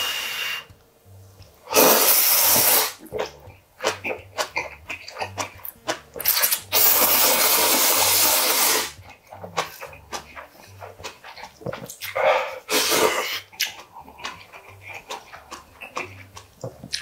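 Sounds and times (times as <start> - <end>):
wet chewing clicks: 1.4 - 17.0
man slurping noodles: 1.7 - 3.4, 6.3 - 9.0, 11.3 - 17.0.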